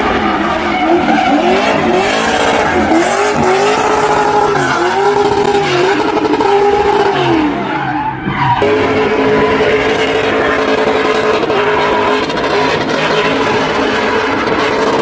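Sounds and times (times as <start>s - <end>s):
car engine revving hard: 0.0s - 7.8s, 8.5s - 15.0s
tyres squealing on tarmac: 0.0s - 14.9s.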